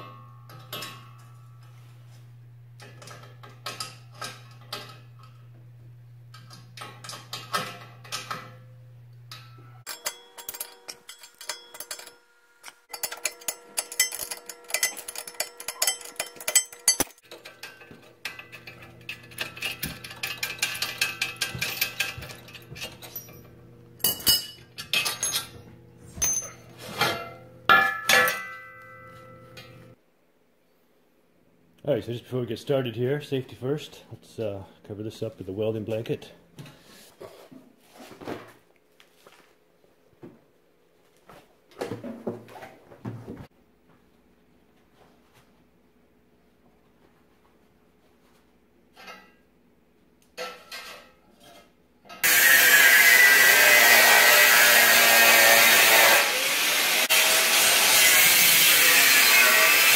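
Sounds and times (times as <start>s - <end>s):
metal brackets clinking and rattling: 9.3s - 29.9s.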